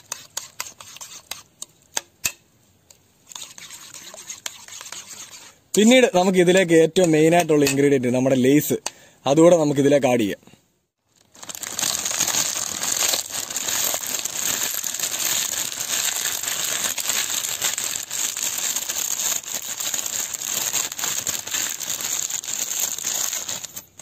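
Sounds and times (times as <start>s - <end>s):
foil bag crinkling: 11.1s - 24.0s.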